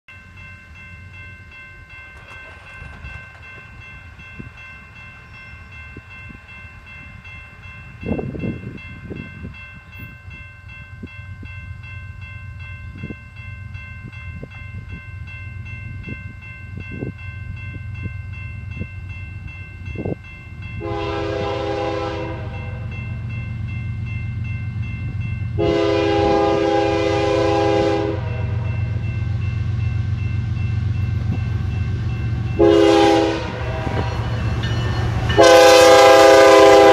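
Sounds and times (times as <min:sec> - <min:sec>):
diesel locomotive rumble: 0:11.0 - 0:36.9
locomotive air horn: 0:20.8 - 0:22.9, 0:25.6 - 0:28.7, 0:32.6 - 0:34.1, 0:35.4 - 0:36.9.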